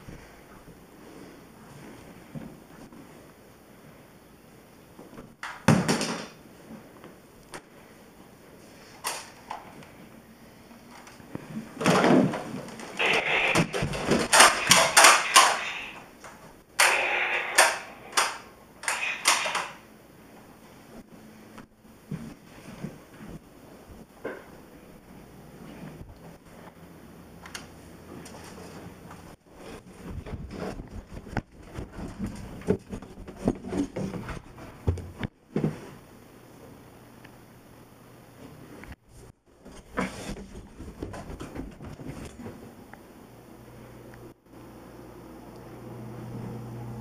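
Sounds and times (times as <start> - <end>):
toy blaster plastic clacks: 13.7 - 15.9, 17.6 - 19.8
footsteps and camera handling thumps: 29.7 - 35.4.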